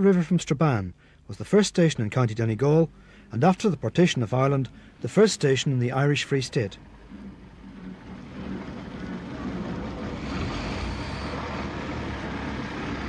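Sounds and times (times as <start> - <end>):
diesel railcar rumbling past: 6.8 - 13.0.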